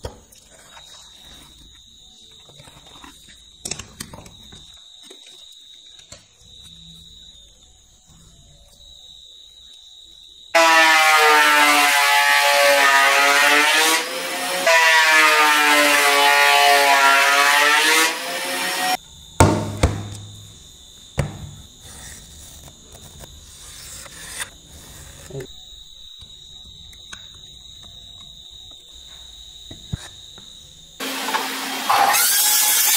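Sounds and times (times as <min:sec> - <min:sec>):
thickness planer whining: 0:10.6 - 0:19.0, 0:31.0 - 0:32.9
sharp knocks: 0:19.4 - 0:20.4, 0:21.2 - 0:21.6.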